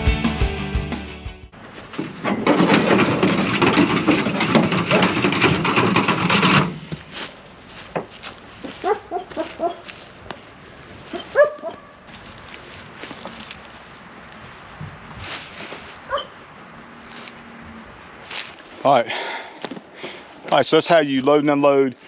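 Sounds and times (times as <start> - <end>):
metal panel scraping and rattling: 1.9 - 7.2.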